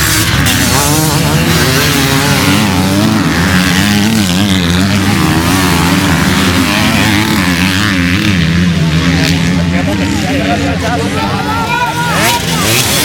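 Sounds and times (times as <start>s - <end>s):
motorcycle engines revving: 0.0s - 13.0s.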